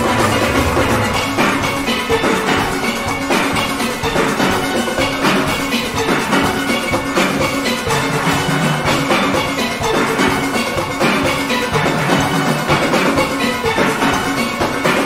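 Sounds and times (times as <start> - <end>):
steelpans playing: 0.0 - 3.0
drum kit and percussion: 0.0 - 15.0.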